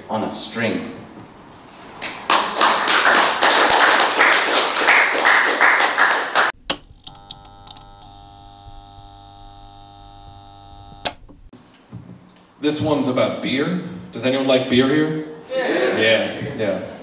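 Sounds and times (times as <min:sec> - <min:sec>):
audience applauding: 0:02.2 - 0:06.6.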